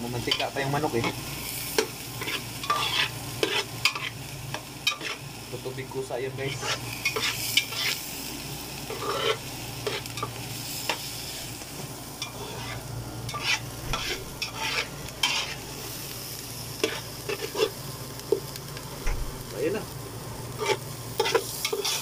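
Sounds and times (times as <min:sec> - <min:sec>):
vegetables sizzling in oil: 0:00.0 - 0:22.0
metal turner scraping a pot: 0:02.2 - 0:04.2, 0:08.9 - 0:10.0, 0:12.2 - 0:15.6, 0:20.6 - 0:22.0
steady low hum: 0:11.4 - 0:16.9.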